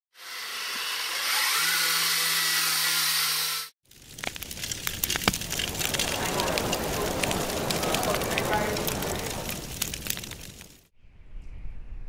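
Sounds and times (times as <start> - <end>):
fire crackling and snapping: 3.8 - 10.9
outdoor background noise: 3.9 - 12.0.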